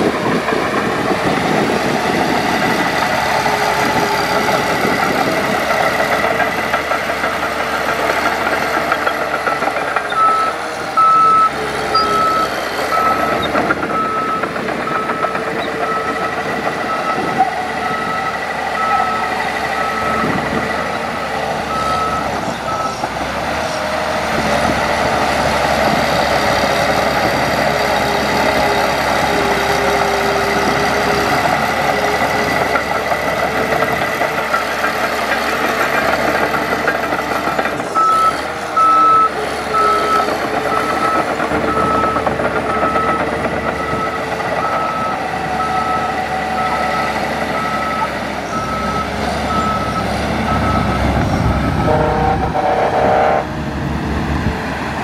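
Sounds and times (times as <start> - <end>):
diesel engine running: 0.0 - 55.0
reversing alarm beeping: 8.7 - 23.1, 36.4 - 53.4.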